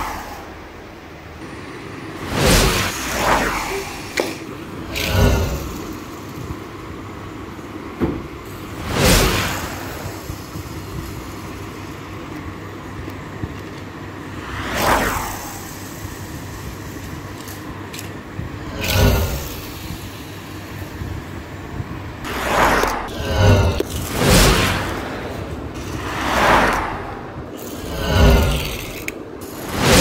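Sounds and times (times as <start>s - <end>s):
toy cars rolling on tiled floor: 15.5s - 20.0s, 27.5s - 30.0s.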